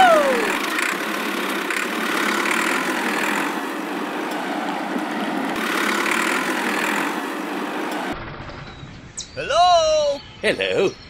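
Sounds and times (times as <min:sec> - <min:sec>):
toy tractor engine running: 0:00.0 - 0:03.7, 0:05.6 - 0:07.1.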